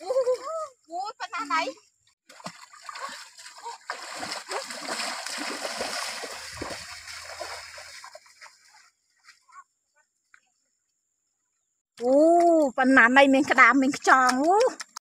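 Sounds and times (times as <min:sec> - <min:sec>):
feet splashing in water: 0:02.3 - 0:08.9.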